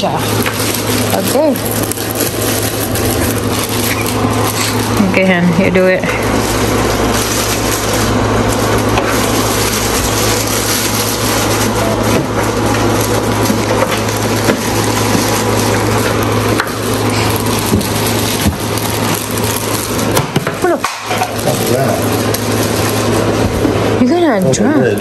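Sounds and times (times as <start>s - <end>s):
packaging rustling and crunching: 0.0s - 25.0s
steady low hum: 0.0s - 25.0s.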